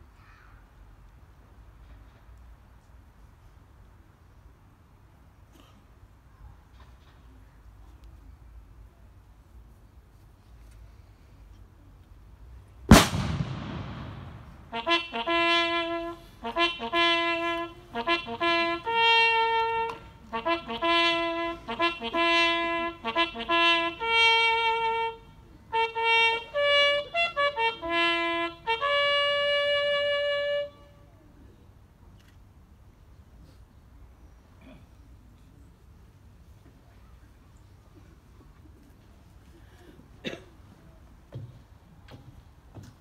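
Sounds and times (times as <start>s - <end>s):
loud bang with rumbling tail: 12.9s - 14.8s
solo bugle call: 14.2s - 31.2s.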